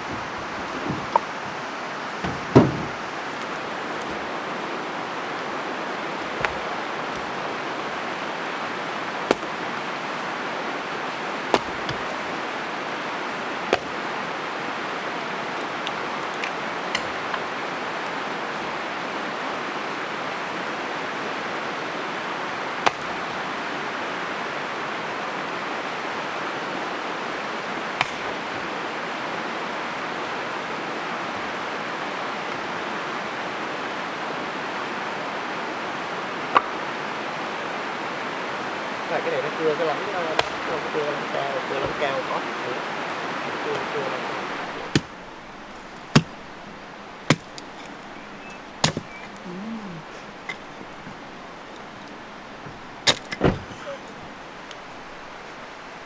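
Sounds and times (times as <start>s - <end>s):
river rushing: 0.0s - 56.0s
axe splitting wood: 2.2s - 4.4s, 6.1s - 7.9s, 9.0s - 10.1s, 11.5s - 12.6s, 13.3s - 14.5s, 15.5s - 17.7s, 22.8s - 23.4s, 27.9s - 28.7s, 36.5s - 36.8s, 40.2s - 40.8s, 44.6s - 56.0s.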